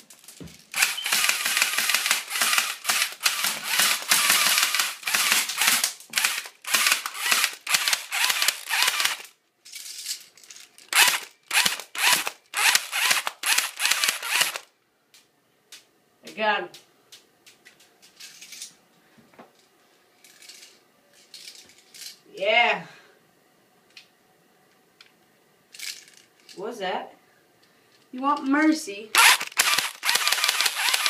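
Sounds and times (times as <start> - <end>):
airsoft gun firing bursts: 0.8 - 9.3, 11.0 - 14.6, 29.2 - 31.0.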